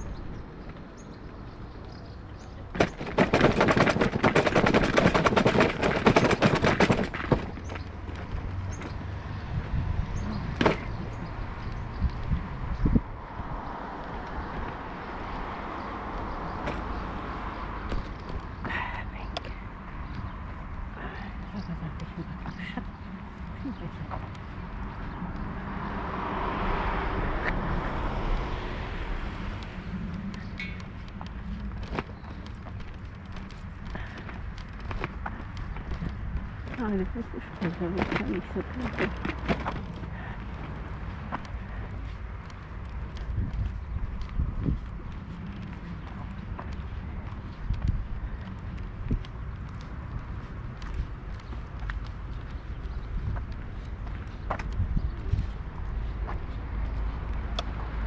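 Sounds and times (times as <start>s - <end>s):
road vehicle passing: 0.0s - 58.0s
wind rumble on microphone: 0.0s - 58.0s
bicycle rattling over paving: 2.0s - 9.2s, 14.2s - 25.2s, 27.8s - 57.1s
rolling rumble: 2.3s - 9.1s.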